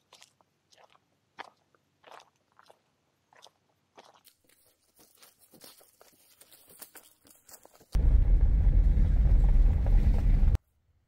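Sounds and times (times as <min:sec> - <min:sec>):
footsteps crunching on dirt: 0:03.4 - 0:08.0.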